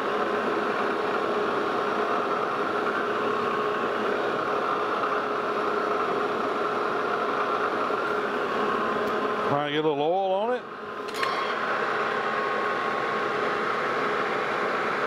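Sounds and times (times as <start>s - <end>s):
metal lathe humming: 0.0s - 10.1s, 10.7s - 15.0s.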